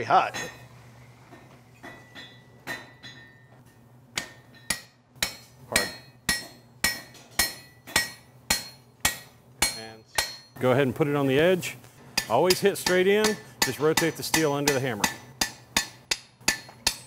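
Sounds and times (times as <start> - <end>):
hammer ringing blows on steel: 4.2 - 10.6.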